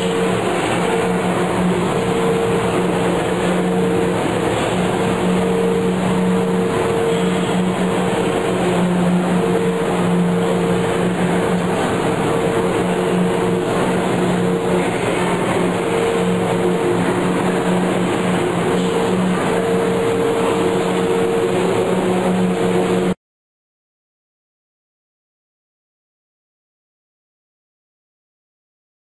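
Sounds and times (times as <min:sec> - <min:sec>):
machinery drone in tunnel: 0:00.0 - 0:23.2.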